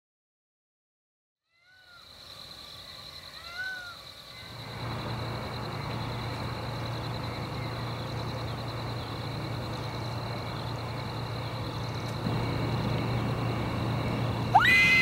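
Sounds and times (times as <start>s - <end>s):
high insect trill: 1.5s - 15.0s
low engine rumble: 4.3s - 15.0s
rising and falling whines: 4.4s - 15.0s.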